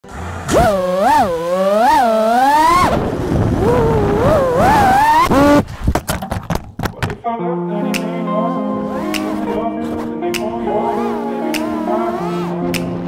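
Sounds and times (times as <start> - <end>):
drone motors whining: 0.4 - 5.6.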